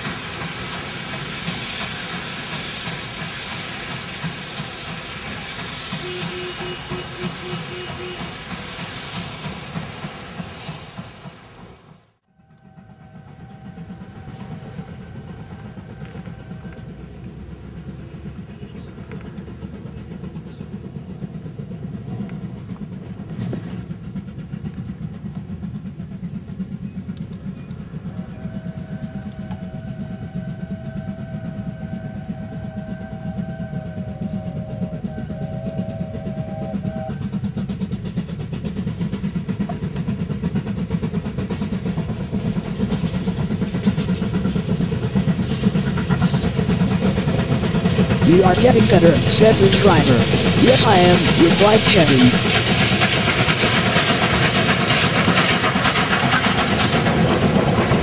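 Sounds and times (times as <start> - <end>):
steam locomotive exhaust beat: 0.0 - 58.0
steam locomotive whistle: 5.9 - 8.6, 12.3 - 17.1, 28.0 - 37.5.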